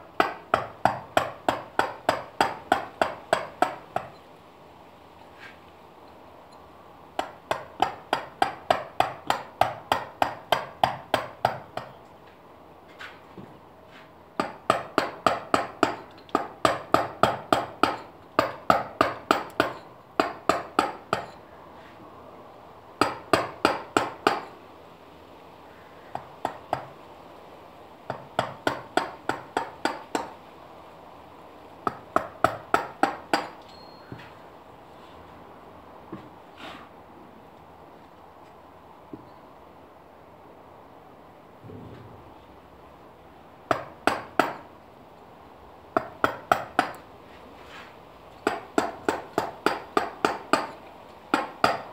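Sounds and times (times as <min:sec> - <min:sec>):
mallet striking chisel into stone: 0:00.2 - 0:04.2, 0:07.2 - 0:12.0, 0:14.4 - 0:21.4, 0:23.0 - 0:24.5, 0:28.1 - 0:30.3, 0:43.7 - 0:44.6, 0:46.0 - 0:47.0, 0:48.4 - 0:51.9.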